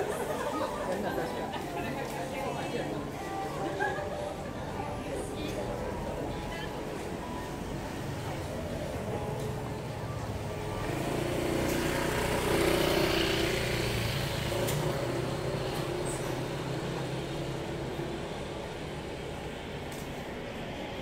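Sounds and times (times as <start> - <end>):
vehicle engine passing by: 10.4 - 18.3.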